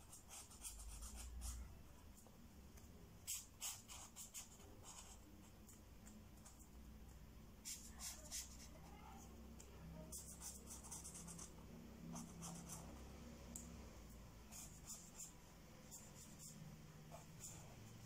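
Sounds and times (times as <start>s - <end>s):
pen scratching on paper: 0.0s - 1.7s, 3.2s - 5.6s, 7.6s - 8.8s, 10.0s - 13.1s, 14.5s - 18.0s
low room hum: 0.0s - 18.0s.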